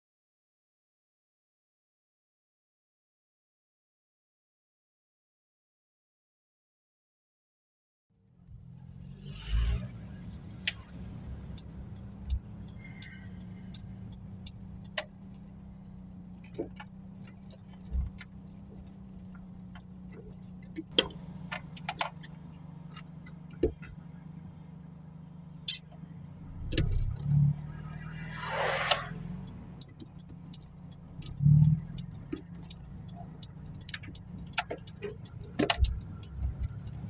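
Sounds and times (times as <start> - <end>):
car engine droning: 8.2 - 37.0
sharp clicks and knocks: 10.6 - 15.4, 16.4 - 24.0, 25.6 - 28.1, 28.8 - 37.0.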